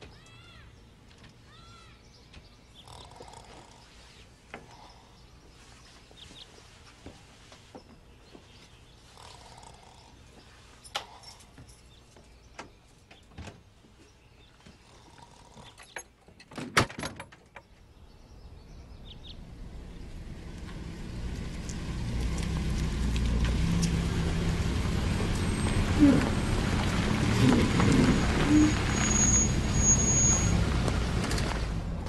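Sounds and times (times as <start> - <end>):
low rumble: 18.0 - 29.0.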